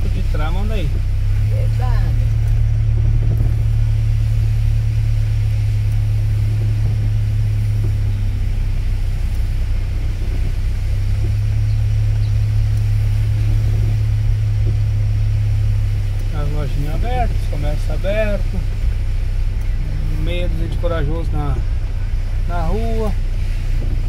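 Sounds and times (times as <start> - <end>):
car engine and road rumble: 0.0 - 24.0
faint tyre hiss: 0.0 - 24.0.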